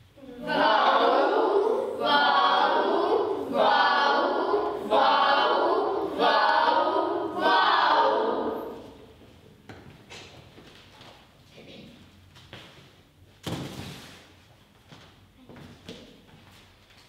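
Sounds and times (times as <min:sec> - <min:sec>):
group singing without instruments: 0:00.2 - 0:09.1.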